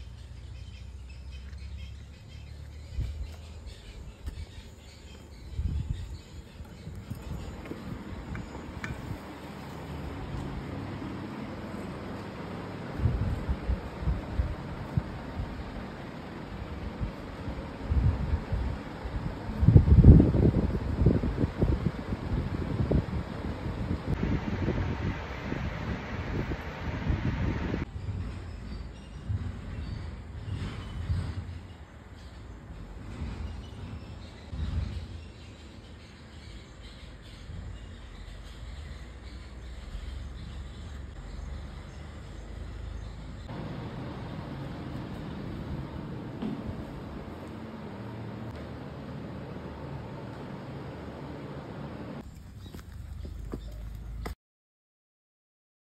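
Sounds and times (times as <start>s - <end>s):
wind buffeting microphone: 2.7s - 10.9s, 12.4s - 38.9s, 43.4s - 48.6s.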